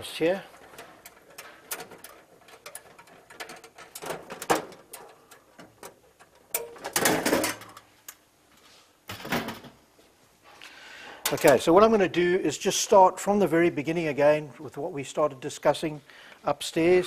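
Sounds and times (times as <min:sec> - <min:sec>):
cover panel clattering: 0:00.6 - 0:07.8
switchboard cover rattling: 0:00.6 - 0:07.8.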